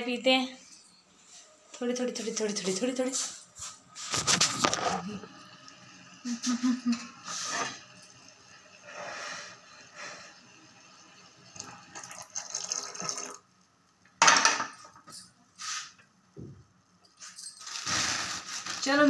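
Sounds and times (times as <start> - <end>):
tea pouring into cups: 11.1 - 13.5.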